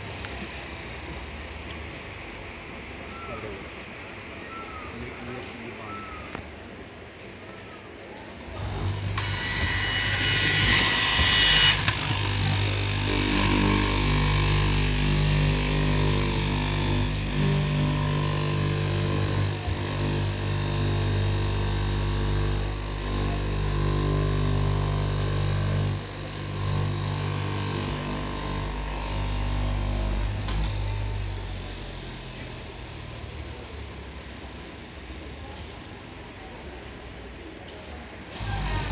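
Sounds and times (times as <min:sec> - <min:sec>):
cloth cutting machine motor humming: 0:08.4 - 0:35.9, 0:38.3 - 0:38.9.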